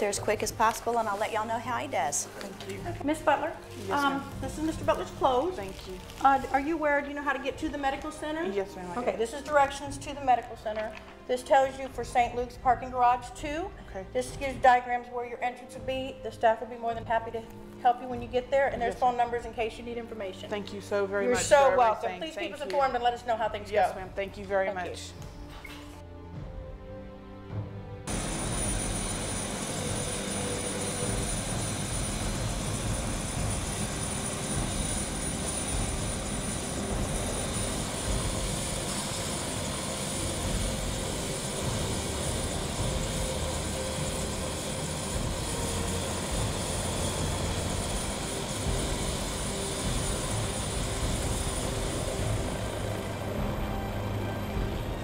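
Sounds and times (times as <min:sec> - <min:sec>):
helicopter engine and rotor: 0:28.1 - 0:55.0
high whine: 0:28.1 - 0:55.0.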